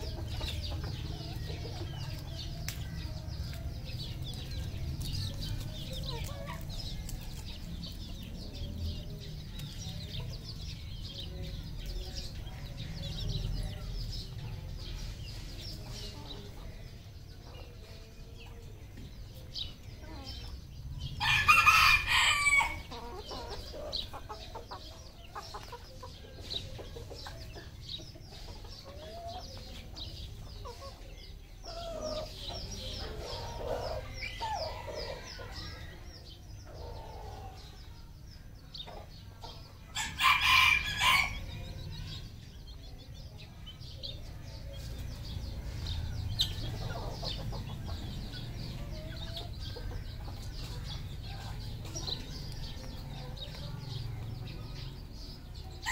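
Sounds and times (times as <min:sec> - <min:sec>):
chickens clucking: 0:00.0 - 0:55.9
rooster crowing: 0:21.2 - 0:22.9.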